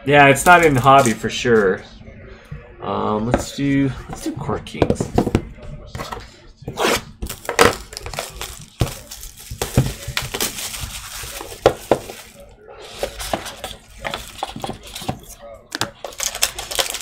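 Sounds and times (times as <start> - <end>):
plastic wrap tearing and crinkling: 6.8 - 15.0, 16.0 - 17.0.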